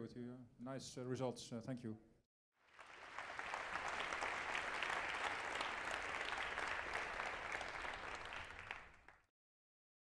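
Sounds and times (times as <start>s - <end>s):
audience applauding: 2.6s - 9.3s.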